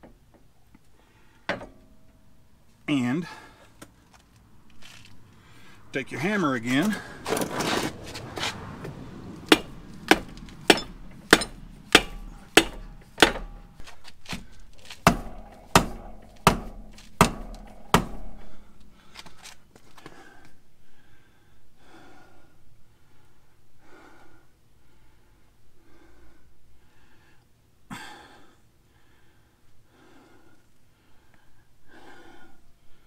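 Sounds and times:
dead blow hammer striking metal: 1.5 - 2.3, 9.4 - 19.1.

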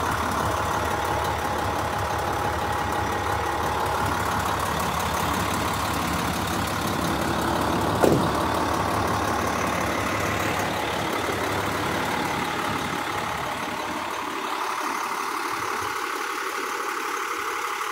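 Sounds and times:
diesel engine idling: 0.0 - 17.9
sharp thud: 8.0 - 8.6.

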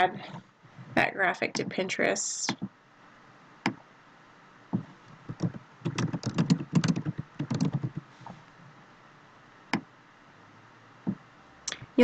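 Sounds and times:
typing on computer keyboard: 5.3 - 8.0.

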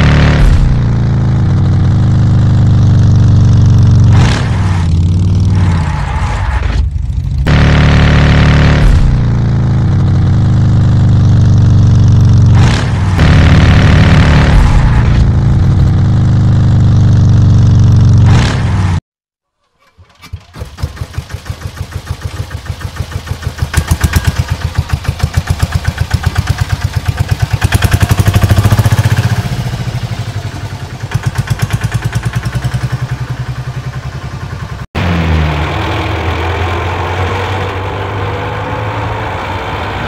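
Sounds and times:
engine revving sound effect: 0.0 - 19.0.

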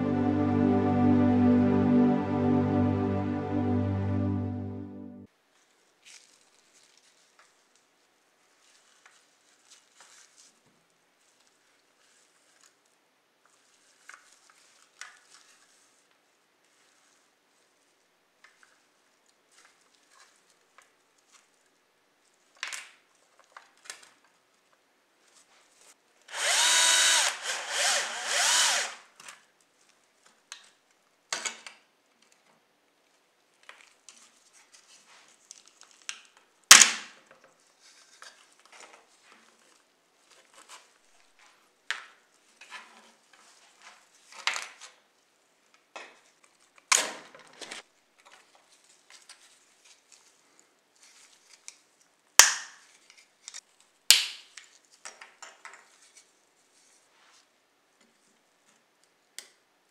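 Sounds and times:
electric screwdriver whirring: 26.3 - 29.0.

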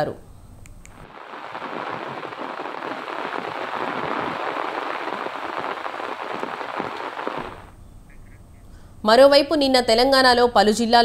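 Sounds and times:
heavy rain on wet pavement: 1.0 - 7.7.

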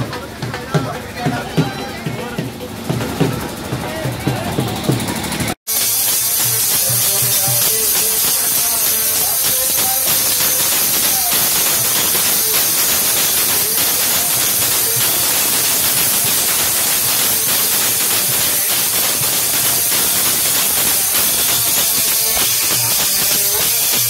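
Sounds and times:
music: 0.0 - 24.0.

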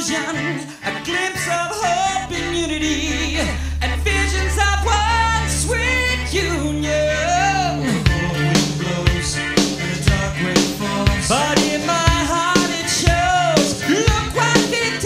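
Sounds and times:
person singing: 0.0 - 15.0
low bass note: 1.3 - 11.6.

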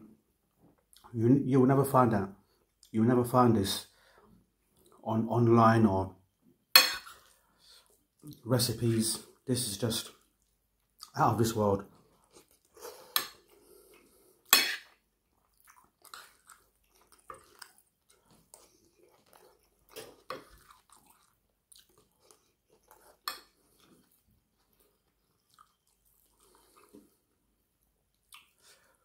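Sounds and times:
chewing and mouth noises: 12.0 - 29.0.

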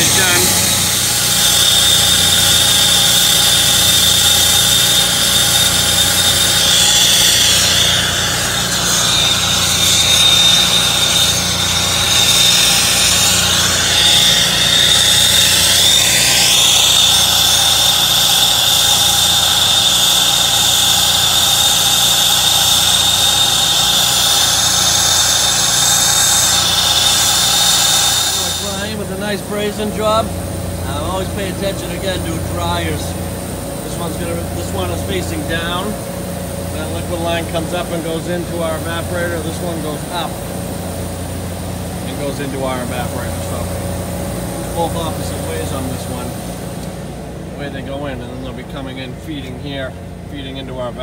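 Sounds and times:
torch flame hissing: 0.0 - 30.2
machine hum with high whine: 0.0 - 51.0.

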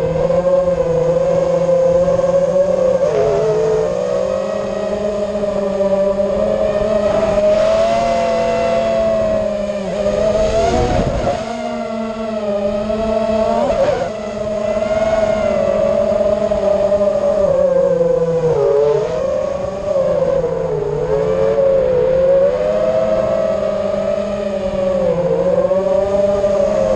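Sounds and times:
quadcopter propellers whining: 0.0 - 26.9.

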